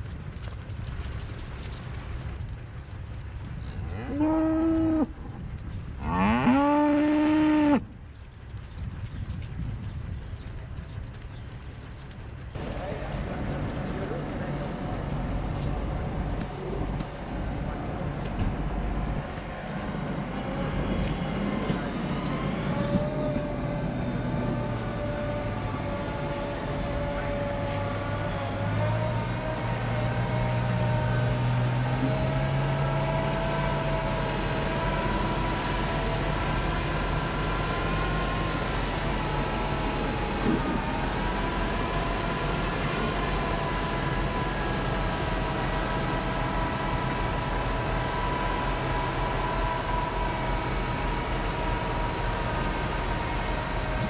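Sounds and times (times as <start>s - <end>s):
tractor diesel engine under load: 12.0s - 54.0s.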